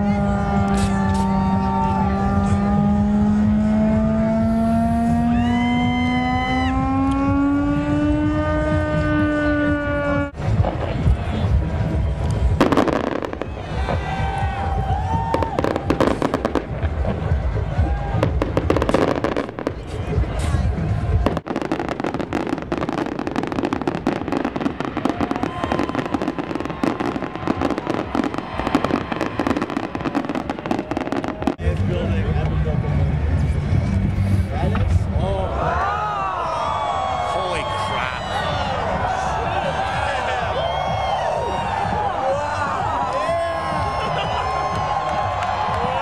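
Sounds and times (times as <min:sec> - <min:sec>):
loud rising droning tone: 0:00.0 - 0:10.6
fireworks crackling and banging: 0:00.2 - 0:02.8, 0:06.2 - 0:35.2.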